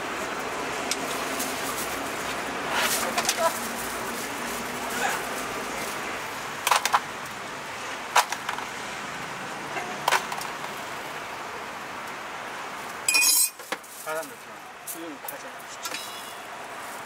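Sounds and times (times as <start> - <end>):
street background noise: 0.0 - 17.0
metal spoon clinking: 13.1 - 13.6.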